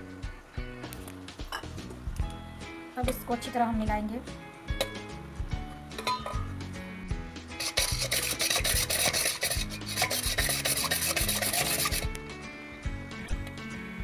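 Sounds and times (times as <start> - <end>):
whisk beating batter in metal pot: 7.6 - 12.2.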